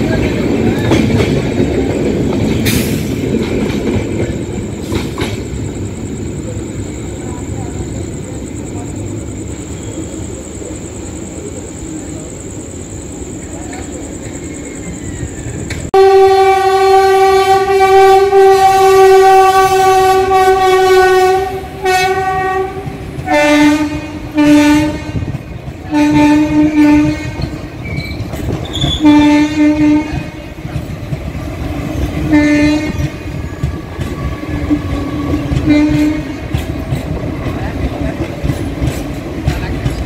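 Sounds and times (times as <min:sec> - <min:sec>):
train wheels clattering over rails: 0:00.0 - 0:06.6, 0:21.5 - 0:40.0
train horn long blast: 0:15.9 - 0:27.6, 0:28.9 - 0:30.5, 0:32.3 - 0:36.5
lower train horn short blasts: 0:16.0 - 0:25.3, 0:25.9 - 0:27.6, 0:28.9 - 0:30.5, 0:32.3 - 0:33.2, 0:34.4 - 0:36.5.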